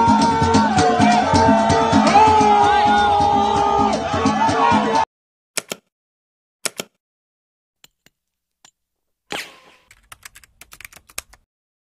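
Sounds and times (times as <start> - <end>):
sharp clicks: 5.6 - 5.9, 6.6 - 7.0, 9.9 - 11.4.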